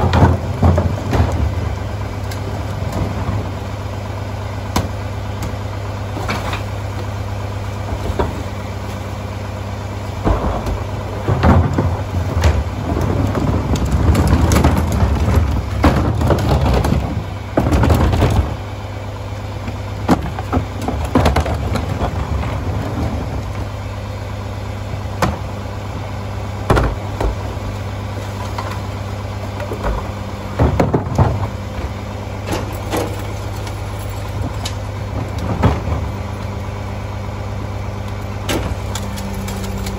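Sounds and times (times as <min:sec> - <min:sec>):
trash thudding into hopper: 0:00.0 - 0:03.6, 0:10.0 - 0:18.8, 0:19.7 - 0:23.9, 0:26.6 - 0:39.9
trash carts banging: 0:00.0 - 0:03.8, 0:10.0 - 0:24.0, 0:24.8 - 0:39.9
diesel engine idling: 0:00.0 - 0:39.9.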